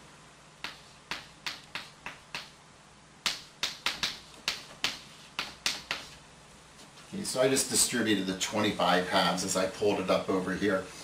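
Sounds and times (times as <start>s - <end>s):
chalk tapping on a blackboard: 0.6s - 2.6s, 3.2s - 6.2s.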